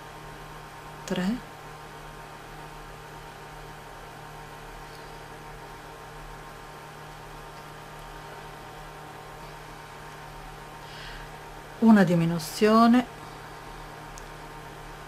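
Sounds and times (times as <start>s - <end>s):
background hiss: 0.0s - 15.0s
electrical mains hum: 0.0s - 15.0s.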